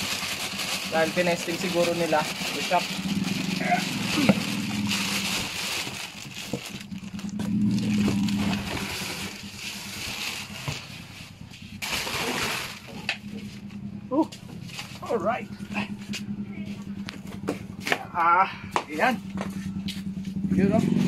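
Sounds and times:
plastic and cardboard rustling: 0.0s - 13.7s
low hum: 2.3s - 21.0s.

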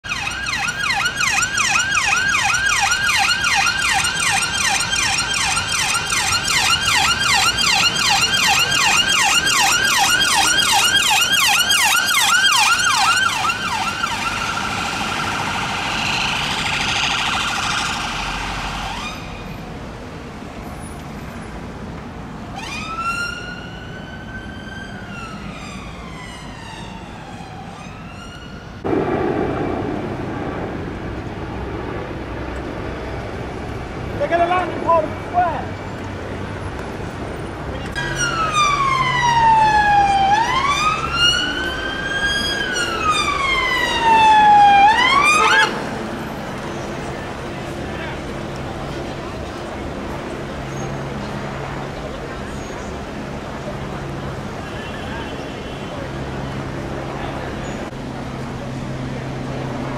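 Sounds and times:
siren yelping: 0.0s - 19.5s, 22.5s - 28.8s, 38.0s - 45.9s
siren wailing: 0.0s - 19.6s, 22.5s - 29.3s, 37.9s - 46.2s
steady low rumble: 28.8s - 34.1s.

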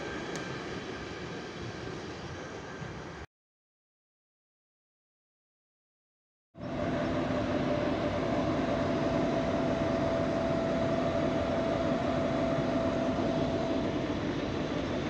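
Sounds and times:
whining hum: 0.0s - 3.2s, 6.6s - 15.0s
diesel locomotive engine running: 6.6s - 15.0s.

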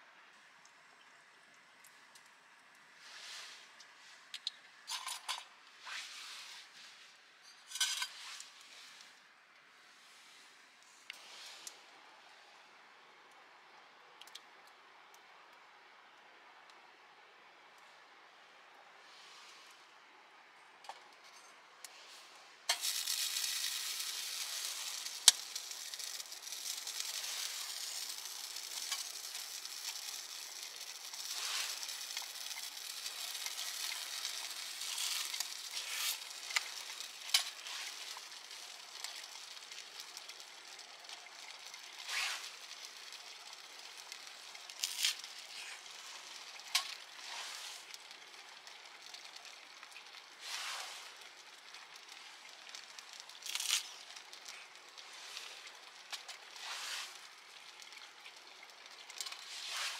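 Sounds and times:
food sizzling in a pan: 22.7s - 59.9s.

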